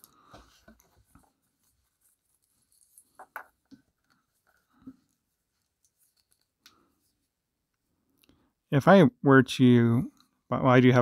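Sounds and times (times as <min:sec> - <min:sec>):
watch strap clicks and rustles: 0:01.5 - 0:06.8.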